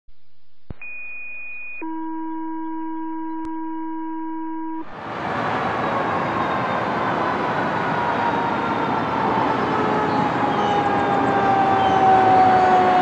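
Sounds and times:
synthesized tones: 1.8 - 4.9
fire engine road noise: 4.7 - 13.0.

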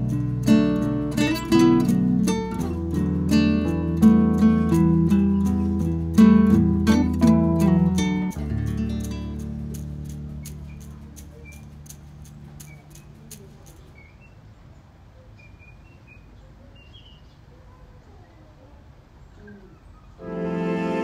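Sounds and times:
small birds chirping: 8.1 - 20.2.

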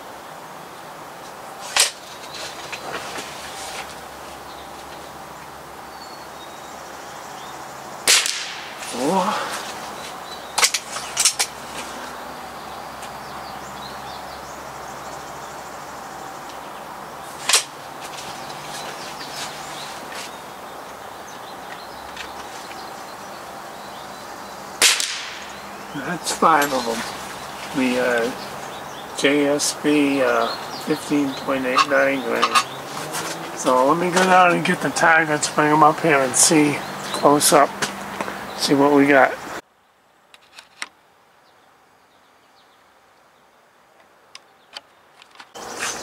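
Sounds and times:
air rifle shots: 8.0 - 8.9, 24.8 - 25.6.

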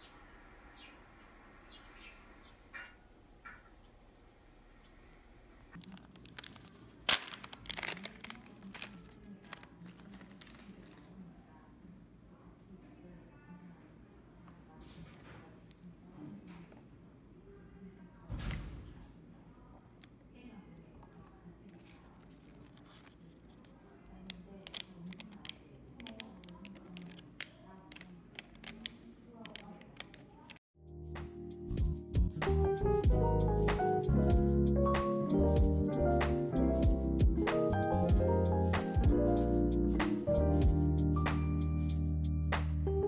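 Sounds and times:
plastic pouch crinkling and tearing: 5.8 - 11.2
plastic wrapper crinkling: 5.8 - 11.2, 21.7 - 30.6.

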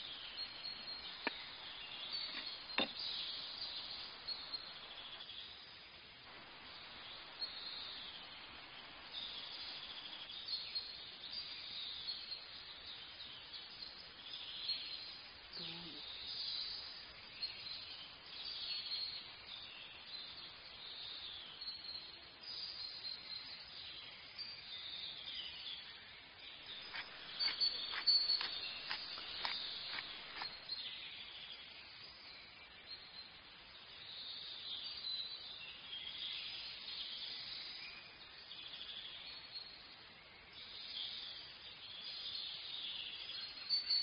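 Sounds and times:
birds chirping: 0.0 - 5.4, 25.4 - 31.7
faint outdoor ambience: 0.0 - 44.0.

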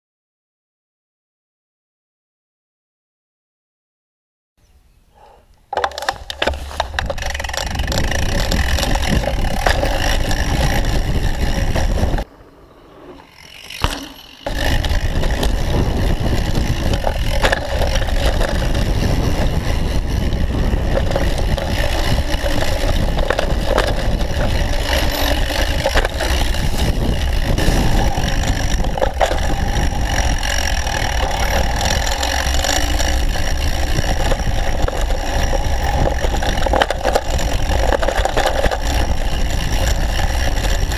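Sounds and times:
bike rattling: 5.7 - 40.9
tyres scraping on dirt: 5.7 - 40.9
wind buffeting microphone: 6.1 - 12.3, 14.5 - 40.9.

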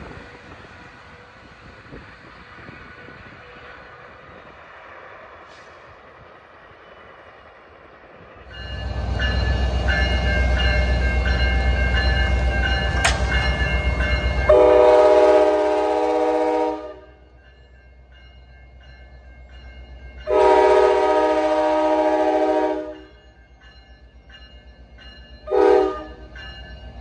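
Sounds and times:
locomotive rumbling: 0.0 - 27.0
train horn blast: 14.5 - 17.2, 20.3 - 23.1, 25.5 - 26.2.

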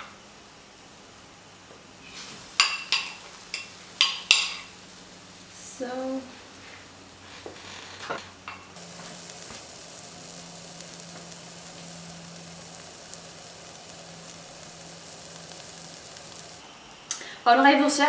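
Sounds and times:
pancake batter sizzling in oil: 0.0 - 7.3, 8.4 - 16.7.

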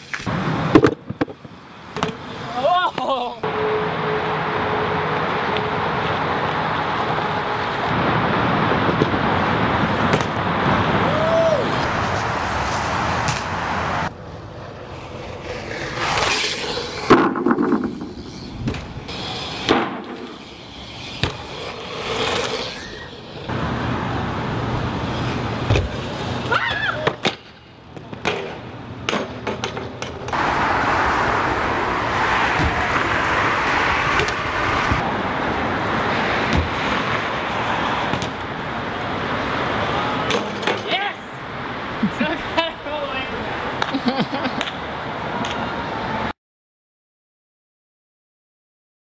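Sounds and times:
bike tyres rolling on pavement: 0.0 - 3.4, 4.2 - 42.1
bike landing knocks: 0.7 - 2.3, 10.1 - 10.4, 21.2 - 21.6, 25.6 - 26.0, 36.5 - 36.9.

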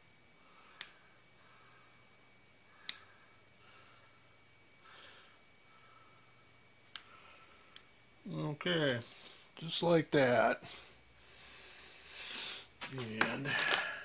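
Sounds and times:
faint room hum: 0.0 - 14.0
small sharp clicks: 0.8 - 1.0, 2.8 - 3.1.

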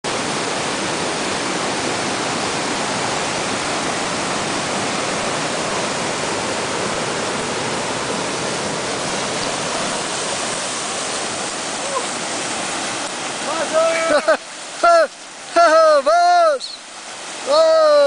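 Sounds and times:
stream rushing over rocks: 0.0 - 18.0.

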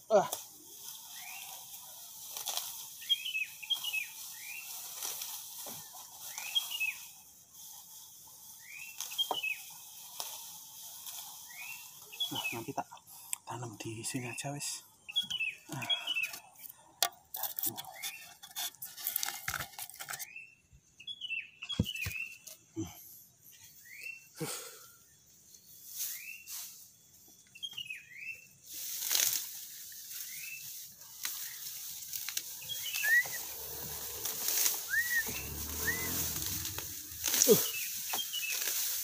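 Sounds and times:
grass rustling and tearing: 0.3 - 12.7, 28.7 - 39.0
small bird chirping: 2.6 - 5.0, 5.8 - 7.2, 8.4 - 10.2, 11.0 - 13.0, 13.9 - 16.7, 30.1 - 38.9
crackles and snaps: 29.0 - 29.6, 31.1 - 39.0.

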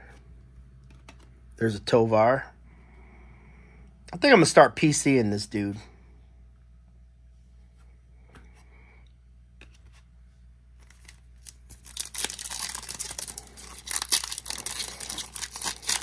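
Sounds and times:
wrapper tearing and crinkling: 10.8 - 16.0.

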